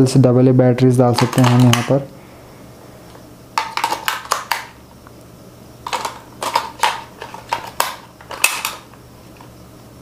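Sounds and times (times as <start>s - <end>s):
batteries clicking into compartment: 1.2s - 1.9s, 3.6s - 4.7s, 5.9s - 8.8s
plastic cover snapping shut: 5.9s - 8.8s.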